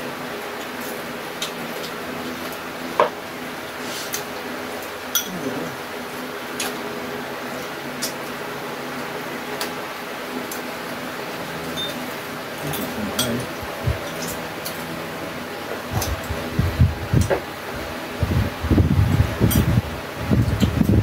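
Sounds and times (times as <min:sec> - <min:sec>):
electric fan humming: 0:00.0 - 0:21.0
utensils clinking on bowls: 0:12.7 - 0:14.8.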